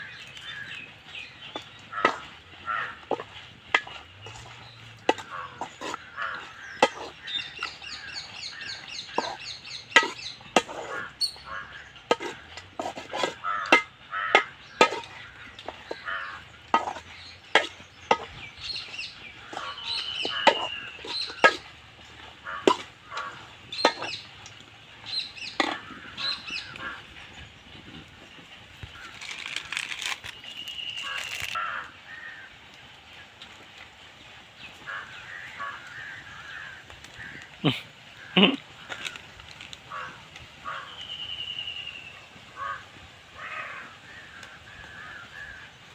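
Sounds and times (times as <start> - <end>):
birds calling: 0.0 - 45.9
metal ladle scraping steel bowl: 1.4 - 24.5, 25.1 - 27.0.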